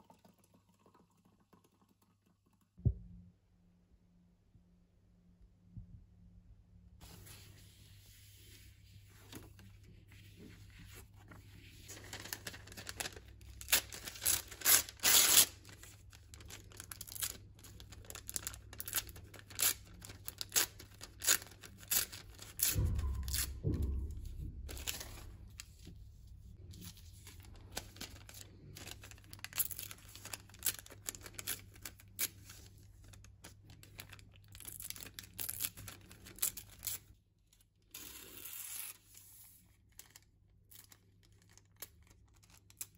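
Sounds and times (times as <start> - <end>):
paper rustling and crinkling: 7.0 - 37.1
paper tearing: 12.0 - 22.6
dull thump: 22.6 - 26.6.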